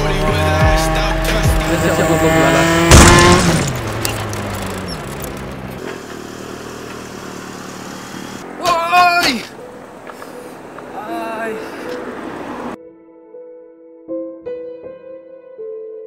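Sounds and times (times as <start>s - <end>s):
music track: 0.0s - 3.3s
car engine: 0.0s - 12.8s
road noise: 0.0s - 12.8s
sharp loud hit: 2.6s - 3.9s.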